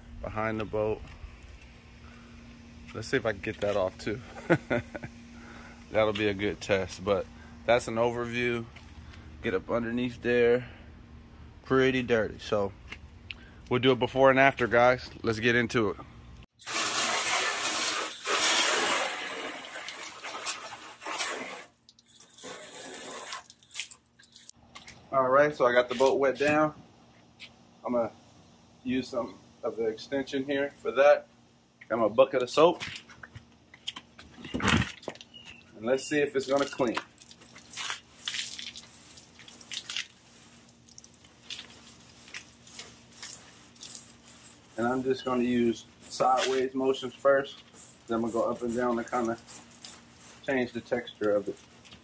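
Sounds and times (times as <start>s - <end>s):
hose spraying water on metal hull: 16.6s - 23.8s, 36.4s - 52.0s.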